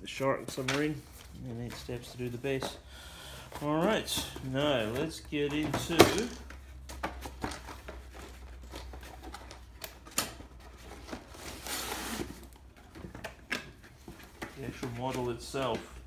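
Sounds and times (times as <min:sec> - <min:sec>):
cardboard scraping cardboard: 0:10.8 - 0:12.5.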